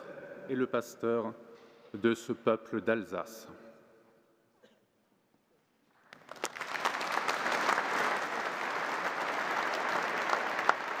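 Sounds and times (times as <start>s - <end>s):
crowd applauding: 6.1s - 11.0s.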